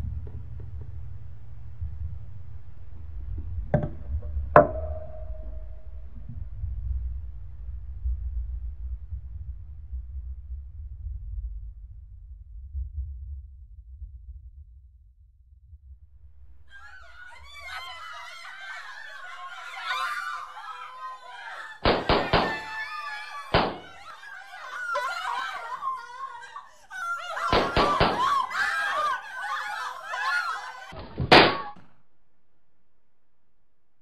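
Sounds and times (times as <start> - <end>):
young voices chattering and laughing: 16.7 - 31.0
loud gunshots: 21.8 - 22.9, 23.5 - 23.8, 27.5 - 28.2, 31.3 - 31.8.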